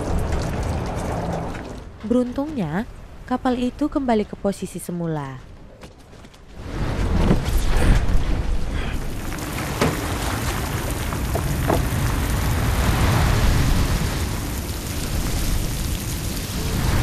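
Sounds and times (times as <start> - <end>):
heavy rain: 0.0 - 2.0, 6.6 - 17.0
wind: 0.0 - 17.0.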